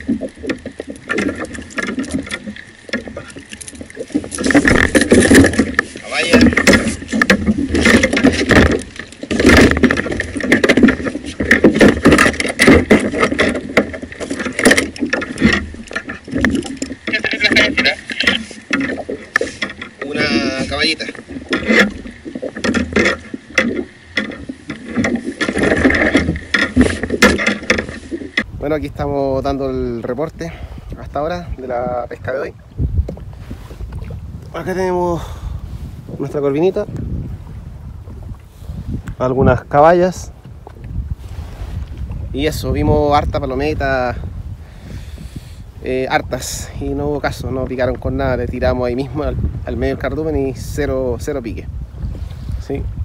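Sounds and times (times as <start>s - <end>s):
tapping and rustling of fish handling: 0.0s - 28.5s.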